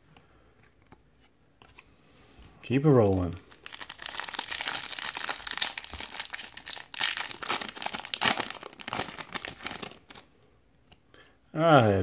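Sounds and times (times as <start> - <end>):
foil wrapper crinkling: 3.0 - 10.3.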